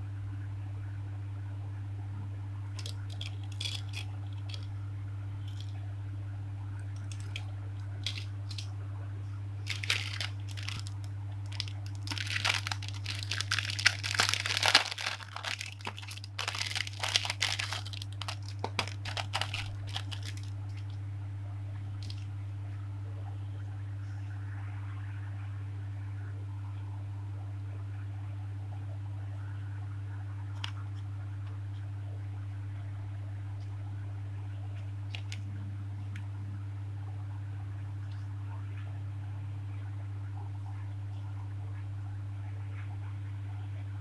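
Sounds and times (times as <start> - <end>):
steady low hum: 0.0 - 44.0
plastic bag crinkling: 2.8 - 4.7, 5.4 - 5.7, 7.0 - 8.7, 9.6 - 21.0, 22.0 - 22.3.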